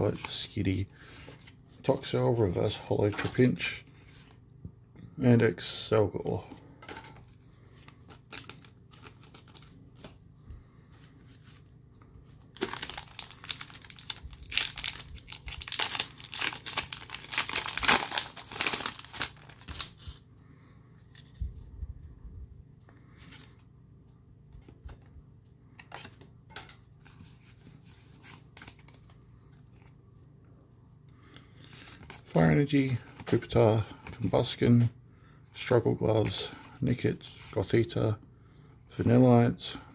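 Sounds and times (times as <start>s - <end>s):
cards clicking and rustling: 12.4s - 20.2s
foil wrapper tearing and crinkling: 12.6s - 20.0s.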